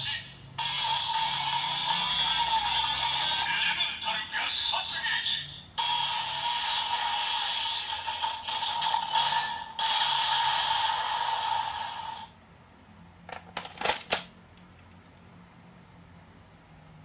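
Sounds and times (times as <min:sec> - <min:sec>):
toy electronic buzzy tone: 0:00.6 - 0:03.5, 0:05.8 - 0:12.3
plastic clicks of toy handling: 0:13.3 - 0:15.0.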